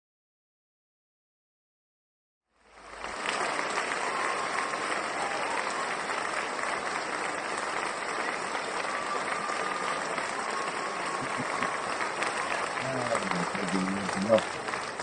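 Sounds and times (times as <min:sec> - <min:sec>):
crowd applauding: 0:02.6 - 0:15.0.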